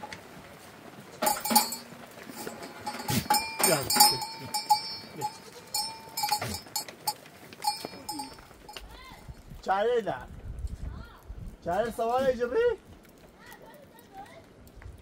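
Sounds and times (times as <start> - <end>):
bell jingling: 1.2 - 6.9, 7.6 - 8.8.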